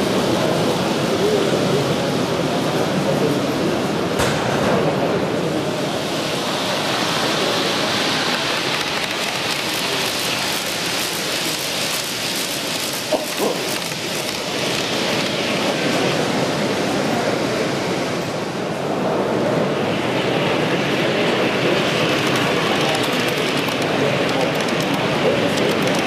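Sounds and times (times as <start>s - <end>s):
model train rolling on track: 0.0s - 26.0s.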